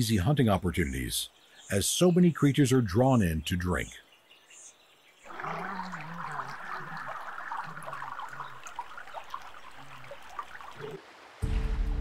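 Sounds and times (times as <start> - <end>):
shallow water sloshing: 5.3 - 11.0
small splashes: 5.3 - 11.4.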